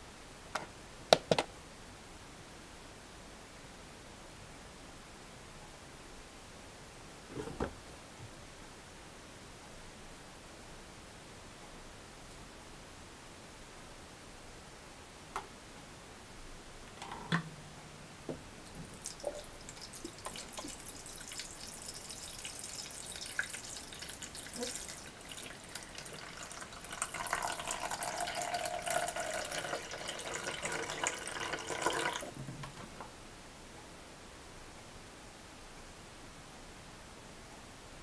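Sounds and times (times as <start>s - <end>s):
water pouring into plastic tank: 18.7s - 32.8s.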